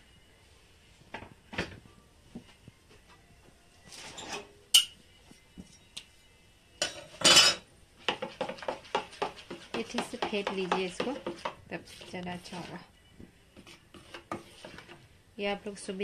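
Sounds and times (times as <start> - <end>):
spoon clinking and scraping in bowl: 6.8 - 12.7.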